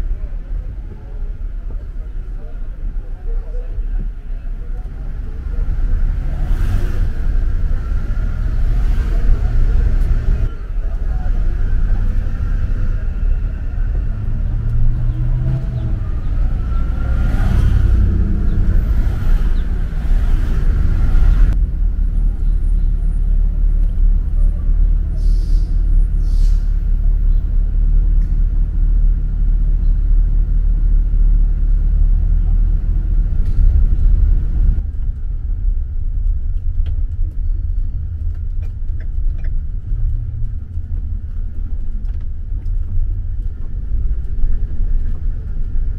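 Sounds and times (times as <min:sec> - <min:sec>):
low rumble of traffic: 0:00.0 - 0:45.9
vehicle passing: 0:05.1 - 0:25.2.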